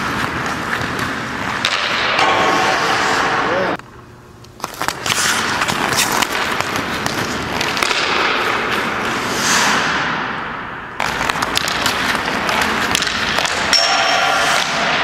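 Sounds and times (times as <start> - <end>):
skate blades scraping ice: 0.0 - 3.8, 4.6 - 15.0
hockey stick clicking on puck: 4.4 - 9.2, 11.0 - 15.0.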